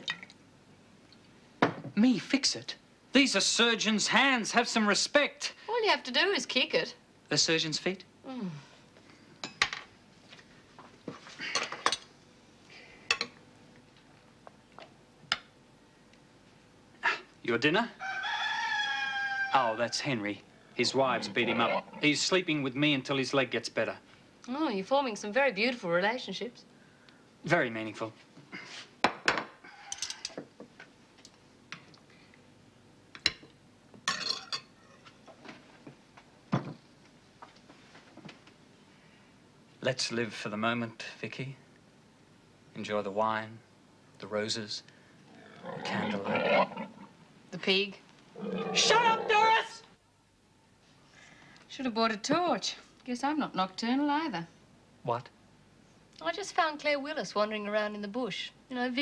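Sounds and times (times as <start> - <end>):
cutlery clinking on plates: 34.1 - 34.7.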